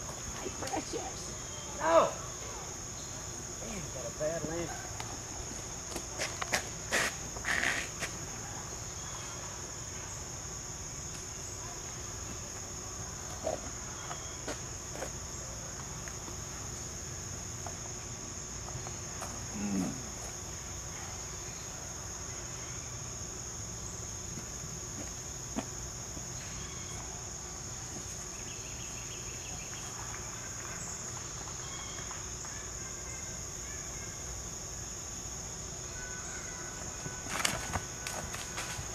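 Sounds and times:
crickets chirring: 0.0 - 38.9.

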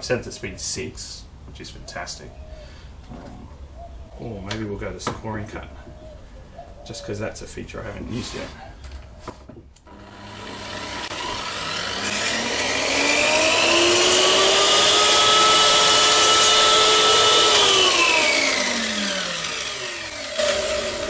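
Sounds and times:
saw cutting plywood: 9.8 - 21.0
track saw motor whining: 9.8 - 21.0.

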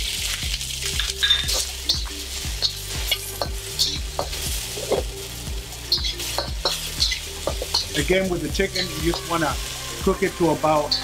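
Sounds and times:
chicken sizzling in a wok: 0.0 - 11.0
metal spatula scraping and tapping pan: 1.0 - 5.0, 5.9 - 8.0.

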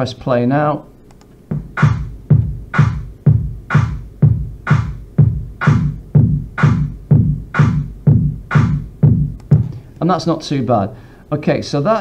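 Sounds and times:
techno kick drum: 1.5 - 9.8.

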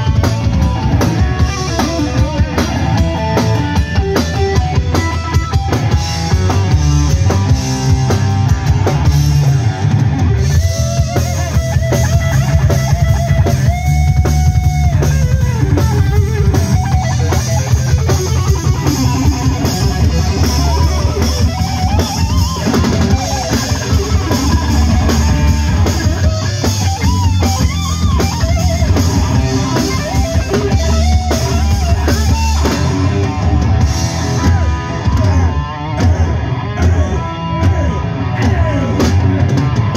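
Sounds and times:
drum kit: 0.0 - 39.9
electric bass: 0.0 - 39.9
electric guitars: 0.0 - 39.9.

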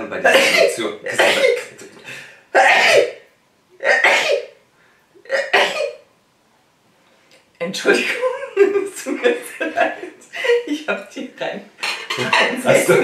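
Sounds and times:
woman coughing: 0.3 - 1.7, 2.6 - 3.2, 3.8 - 4.5, 5.3 - 6.0.

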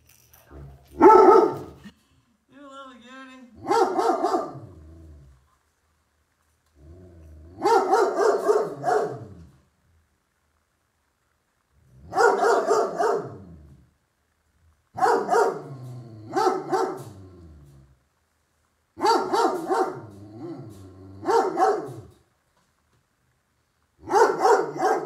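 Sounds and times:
puppy barking: 1.0 - 1.8, 3.6 - 4.7, 7.6 - 9.4, 12.1 - 13.5, 15.0 - 15.7, 16.3 - 17.1, 19.0 - 20.2, 21.2 - 22.1, 24.0 - 25.0.

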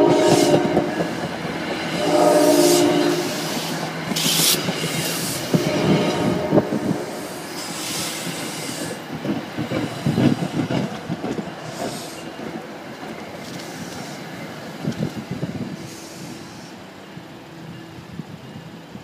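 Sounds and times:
train rumble: 0.0 - 19.0
train wheels clattering over joints: 7.5 - 15.4.

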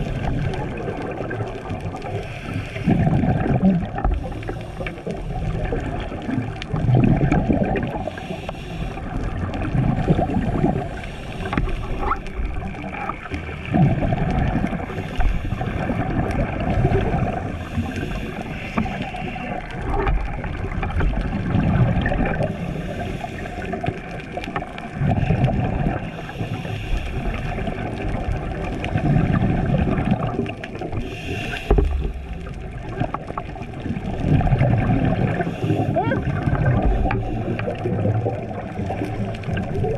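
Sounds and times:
gurgling exhaled bubbles: 0.0 - 39.9
regulator hissing inhale: 2.2 - 3.1, 4.2 - 5.2, 8.0 - 9.3, 10.9 - 12.0, 14.9 - 15.8, 17.5 - 19.6, 22.4 - 24.0, 26.0 - 27.6, 30.9 - 32.2, 35.3 - 36.0, 36.8 - 37.9.

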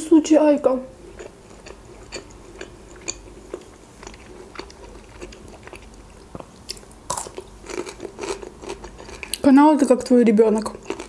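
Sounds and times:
crunchy chewing: 1.1 - 9.4, 10.6 - 11.0.

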